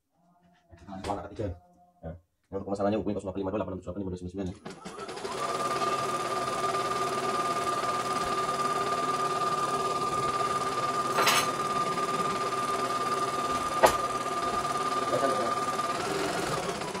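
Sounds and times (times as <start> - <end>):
embroidery machine humming: 4.8 - 17.0.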